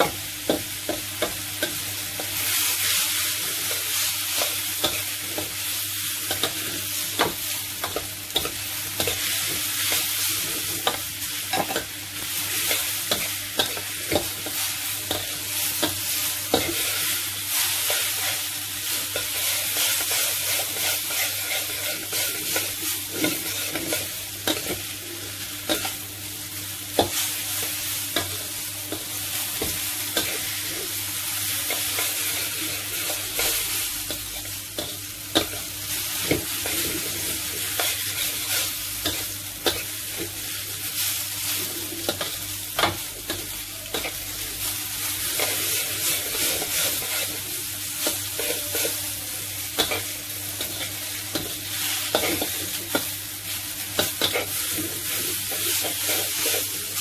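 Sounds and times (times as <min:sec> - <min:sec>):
noodles sizzling in a wok: 0:00.0 - 0:57.0.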